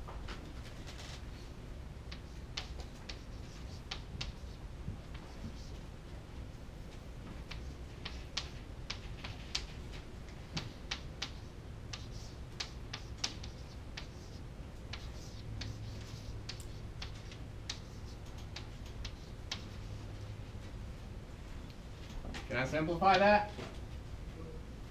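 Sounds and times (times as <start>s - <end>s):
low room hum: 0.0s - 24.9s
chalk tapping on chalkboard: 2.1s - 5.8s, 10.5s - 19.9s.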